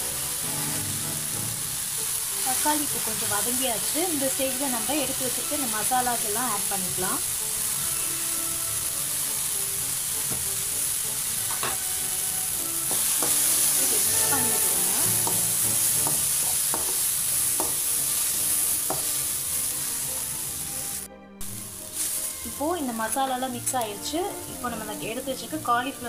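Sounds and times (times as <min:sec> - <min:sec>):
masala sizzling in a pan: 0:00.0 - 0:26.0
metal spoon scraping pan: 0:12.9 - 0:19.3.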